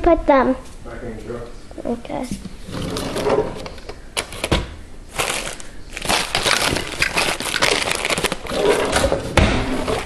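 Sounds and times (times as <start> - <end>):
objects rustling and clattering: 2.2 - 10.0.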